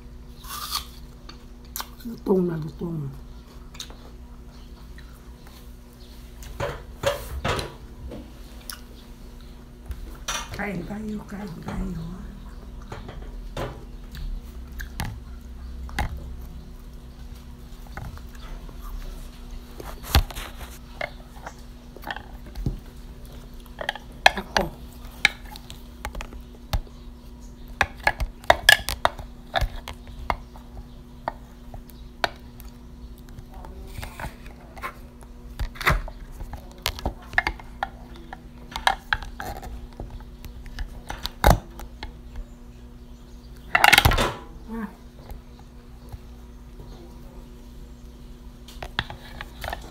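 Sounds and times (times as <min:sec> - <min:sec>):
faint steady hum: 0:00.0 - 0:49.9
apple crunching: 0:00.4 - 0:02.4.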